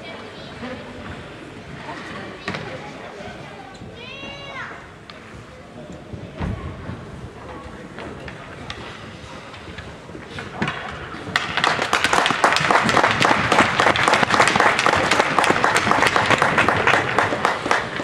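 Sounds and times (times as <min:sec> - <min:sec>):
spectators applauding: 0:11.4 - 0:18.0.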